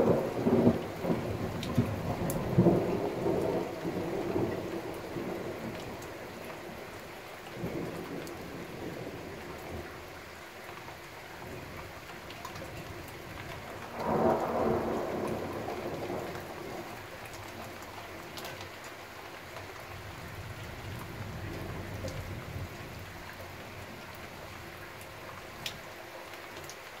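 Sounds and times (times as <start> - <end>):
thunder clap and rumble: 0.0 - 6.8, 13.4 - 17.0
steady rain falling: 0.0 - 27.0.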